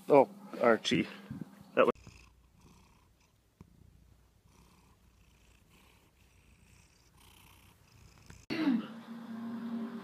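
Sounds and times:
cat purring: 1.9s - 8.5s.

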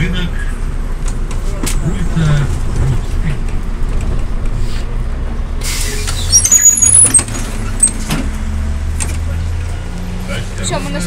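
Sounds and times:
diesel bus engine idling: 0.0s - 11.0s
high squeaks: 6.1s - 8.0s.

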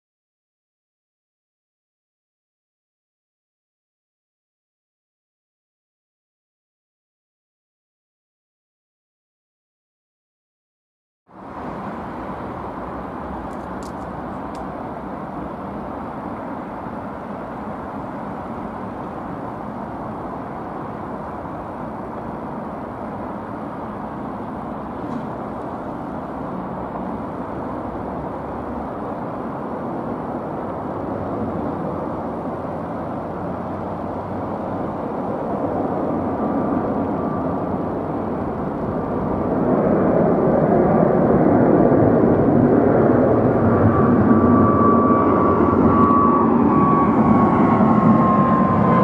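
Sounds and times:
faint whine: 11.3s - 49.0s
jet engines roaring: 11.3s - 49.0s.

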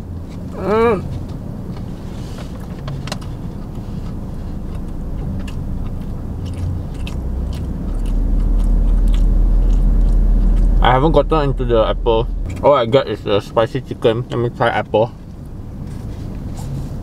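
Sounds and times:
car cabin engine hum: 0.0s - 17.0s
person chewing food: 2.5s - 10.8s.

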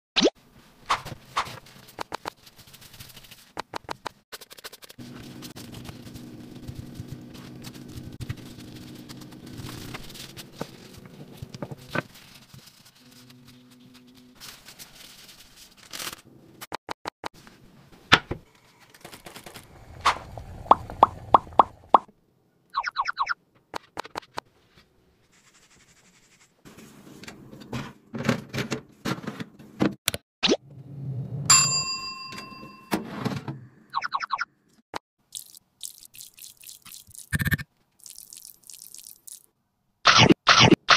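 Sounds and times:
hands rubbing dough on a mat: 1.7s - 13.2s
water dripping and plopping: 35.3s - 37.3s, 38.0s - 39.5s.

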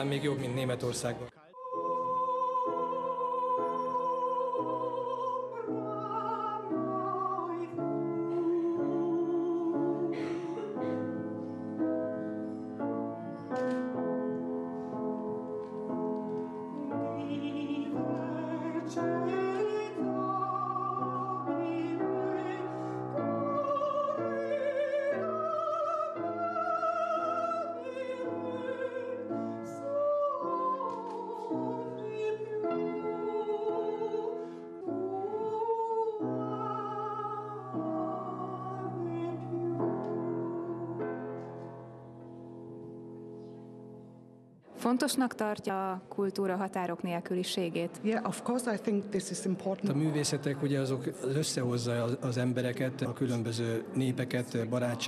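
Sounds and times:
operatic singing: 0.0s - 10.8s, 16.6s - 41.1s
piano chords: 0.0s - 44.8s.

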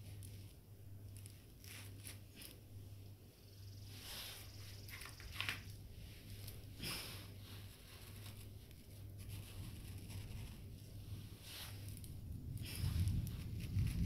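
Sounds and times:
steady low hum: 0.0s - 14.0s
plastic plants scraping in sand: 6.3s - 14.0s.

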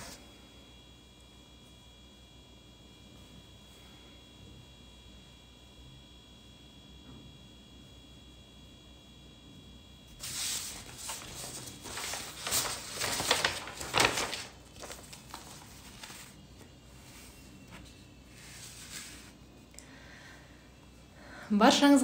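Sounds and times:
paper rustling and shuffling: 10.1s - 19.4s.

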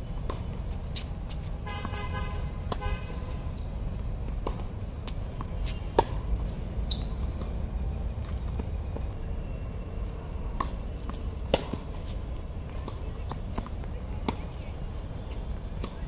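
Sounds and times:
crickets chirring: 0.0s - 16.0s
racket hitting tennis ball: 4.4s - 6.3s, 10.6s - 12.2s.

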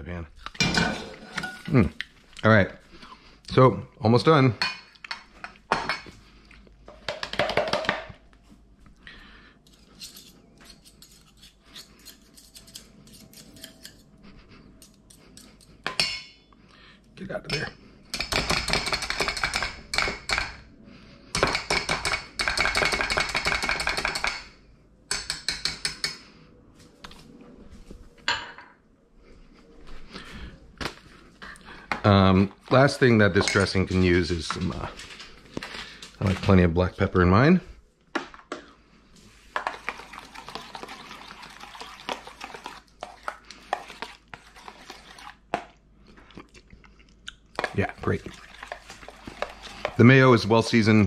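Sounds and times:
whisk scraping a metal bowl: 9.7s - 14.0s, 39.3s - 45.4s, 48.3s - 50.3s.

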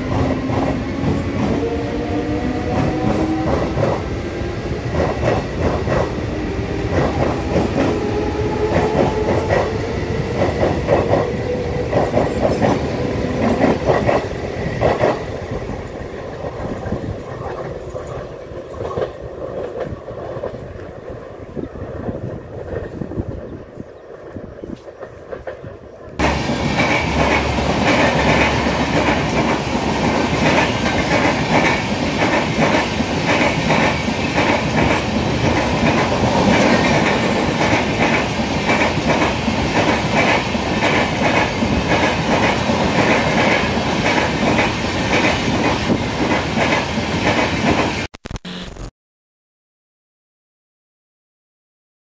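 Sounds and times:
clickety-clack over rail joints: 0.0s - 4.1s, 4.9s - 15.3s, 24.2s - 48.0s
distant train: 0.0s - 48.1s
train wheels rumbling on rails: 0.0s - 48.1s.

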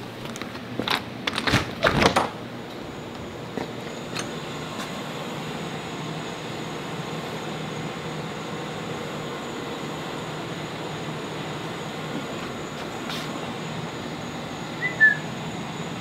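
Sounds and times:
mechanical hum with hiss: 0.0s - 16.0s
door opening with knocks: 1.3s - 2.4s.

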